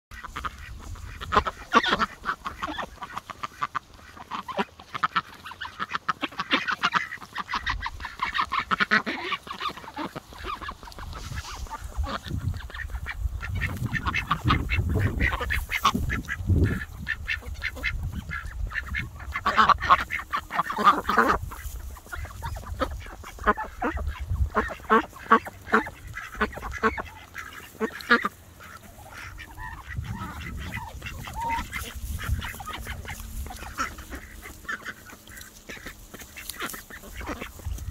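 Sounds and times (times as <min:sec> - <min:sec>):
duck calls: 0:00.1 - 0:37.9
duck bills clicking and snapping: 0:00.2 - 0:37.9
low rumble: 0:28.7 - 0:34.6.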